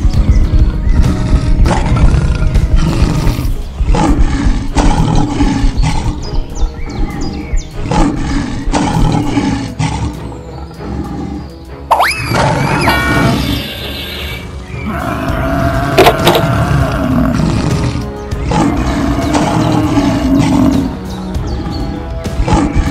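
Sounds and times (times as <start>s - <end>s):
background music: 0.0s - 22.9s
lion roars: 1.1s - 6.3s, 7.3s - 11.5s, 14.8s - 21.0s.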